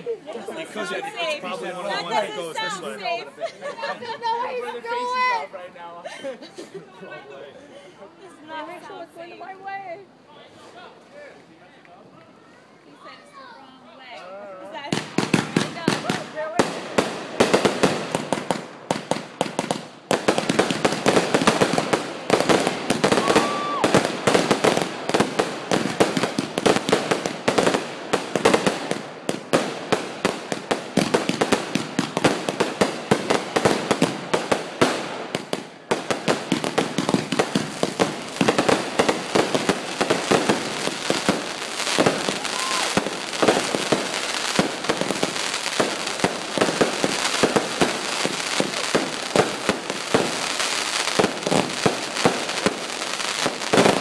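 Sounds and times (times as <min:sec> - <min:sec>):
fireworks popping and banging: 0:14.7 - 0:54.0.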